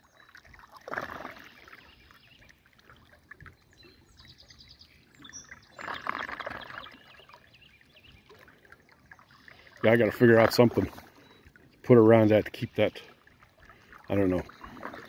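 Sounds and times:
water gurgling down a drain: 0:00.0 - 0:04.6, 0:05.2 - 0:15.0
bird chirping: 0:03.6 - 0:08.3.

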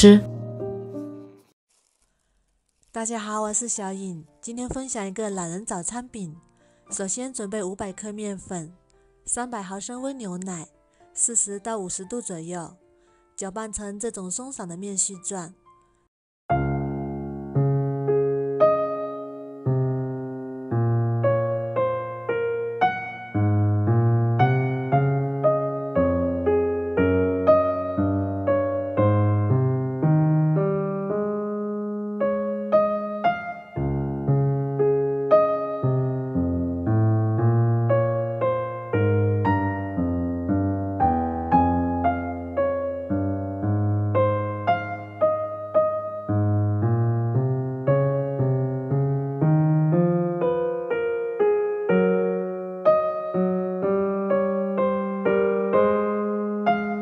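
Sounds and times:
bass line: 0:00.0 - 0:00.8
slow instrumental melody: 0:00.0 - 0:01.5, 0:16.5 - 0:57.0.

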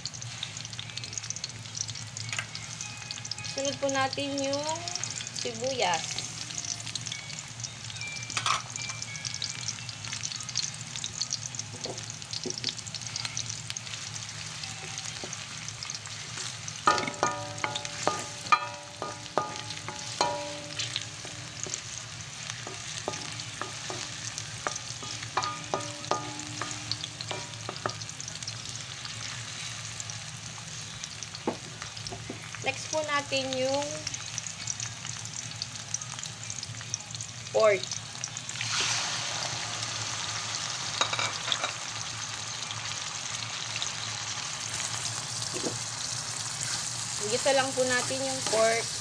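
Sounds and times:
garlic and onion sizzling in oil: 0:00.0 - 0:49.0
spatula stirring: 0:16.1 - 0:28.1
spatula knocking on wok: 0:16.8 - 0:22.0, 0:22.6 - 0:28.1, 0:31.4 - 0:32.4.

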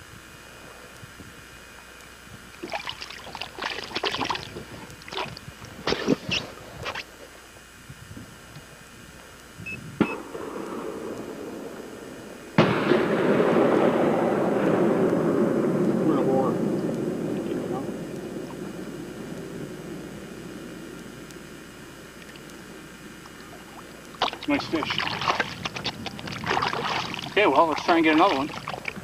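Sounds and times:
fish thrashing in water: 0:02.6 - 0:07.1, 0:22.1 - 0:29.0
loud mechanical drone: 0:07.7 - 0:29.0.

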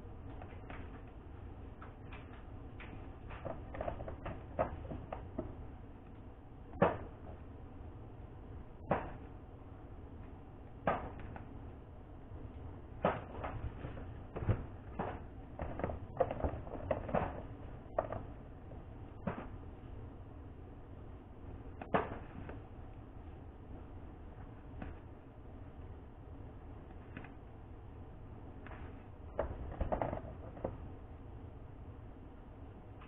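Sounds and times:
low steady hum: 0:00.0 - 0:33.0
small hard objects knocking: 0:02.1 - 0:05.6, 0:13.0 - 0:18.4, 0:29.3 - 0:30.9.

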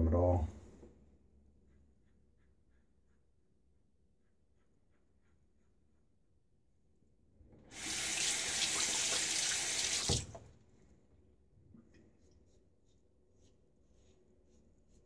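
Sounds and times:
sink tap running: 0:07.7 - 0:10.5.

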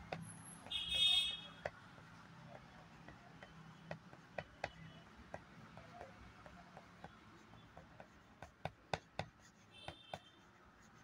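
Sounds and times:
pencil tapping on paper: 0:00.0 - 0:11.0.

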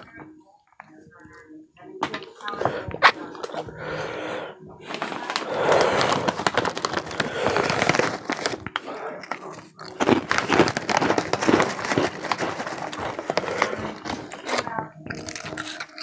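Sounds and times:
crunchy chewing: 0:04.8 - 0:16.0
foil snack bag crinkling: 0:04.8 - 0:16.0.

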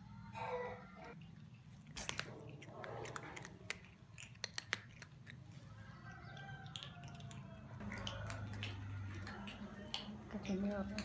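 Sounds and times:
cat crunching dry kibble: 0:01.2 - 0:05.6.

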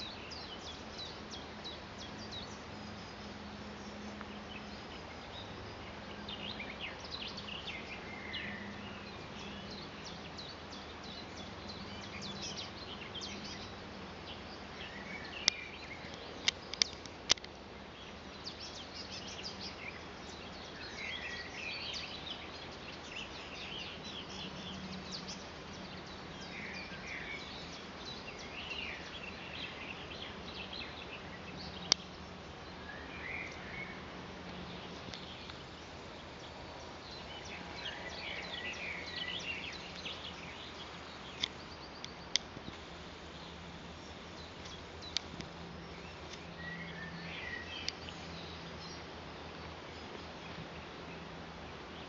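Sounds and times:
small birds chirping: 0:00.0 - 0:52.0
sharp clicks: 0:15.4 - 0:17.5.

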